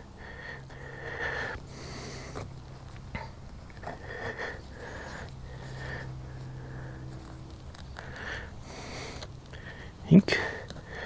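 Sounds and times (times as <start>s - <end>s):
person sniffing: 1.0s - 2.5s.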